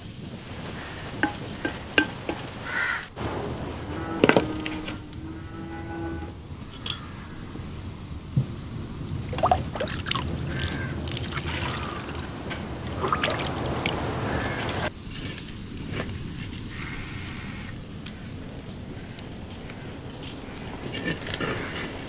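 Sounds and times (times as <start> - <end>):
water sloshing in a pot: 1.1 - 2.8, 9.2 - 14.9
wooden spatula stirring: 1.2 - 2.5.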